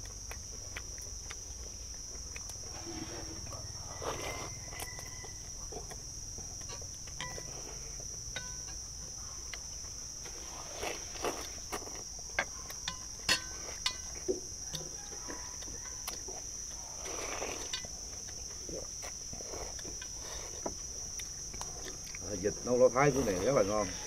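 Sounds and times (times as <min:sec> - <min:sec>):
insects chirring: 0:00.0 - 0:24.0
slurping noodles: 0:10.3 - 0:12.0, 0:16.8 - 0:17.7
chopsticks clicking on steel bowls: 0:12.8 - 0:14.9.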